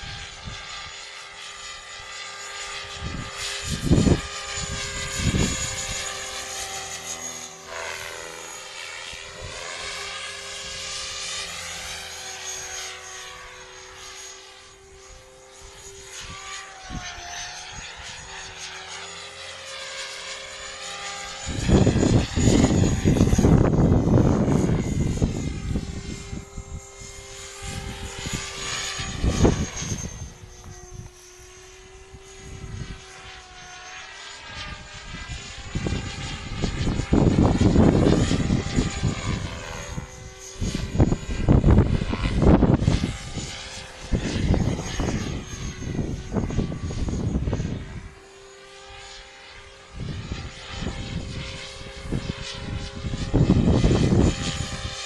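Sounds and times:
rc helicopter rotor and motor: 0.0s - 55.0s
wind buffeting microphone: 2.7s - 6.9s, 21.2s - 33.4s, 34.4s - 48.2s, 49.8s - 55.0s.

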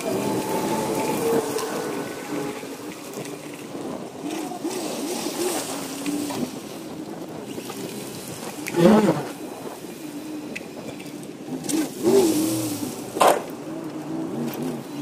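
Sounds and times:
trucks idling: 0.0s - 11.5s
wind on microphone: 0.0s - 15.0s.

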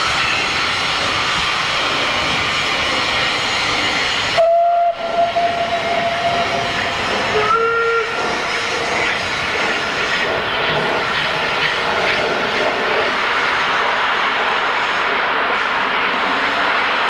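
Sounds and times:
steam hissing: 0.0s - 17.0s
steam locomotive whistle: 4.4s - 6.7s, 7.3s - 8.2s.

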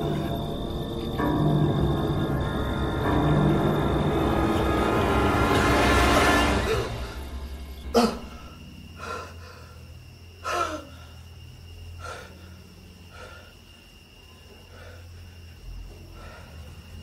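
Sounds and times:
low hum: 0.0s - 9.0s
man breathing heavily: 8.0s - 11.3s, 11.9s - 14.0s.

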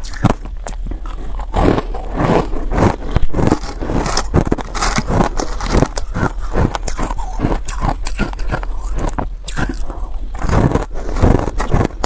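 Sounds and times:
ice being chewed: 0.0s - 12.0s
fingers scraping ice: 0.1s - 12.0s.

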